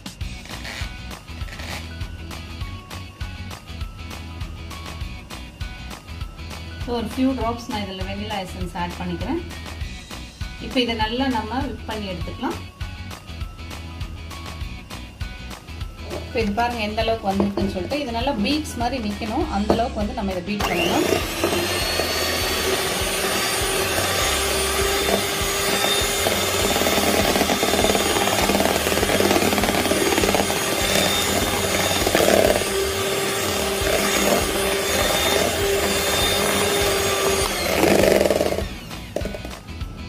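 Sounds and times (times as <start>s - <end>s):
electric hand mixer whipping cream: 20.6s - 39.6s.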